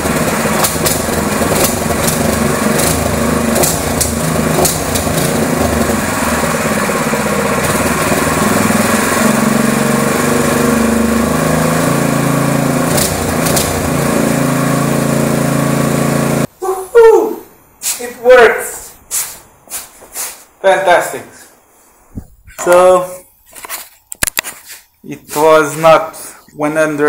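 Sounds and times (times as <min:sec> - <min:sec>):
small engine running: 0:00.0 - 0:16.5.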